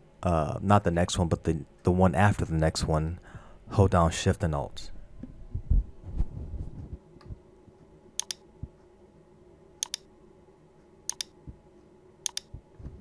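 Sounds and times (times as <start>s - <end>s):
mouse button clicking: 8.2s - 8.4s, 9.8s - 10.0s, 11.1s - 11.3s, 12.2s - 12.5s.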